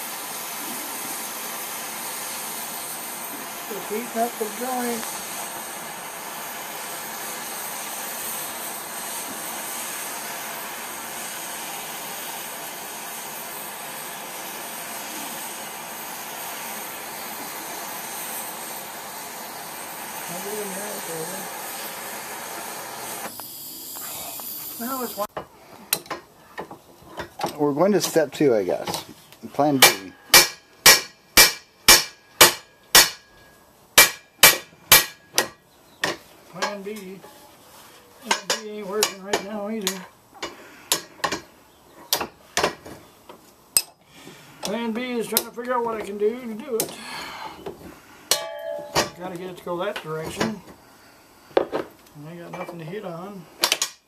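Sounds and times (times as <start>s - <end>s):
torch flame hissing: 0.0s - 25.3s
hammer blows on metal: 29.8s - 33.3s, 48.3s - 49.2s.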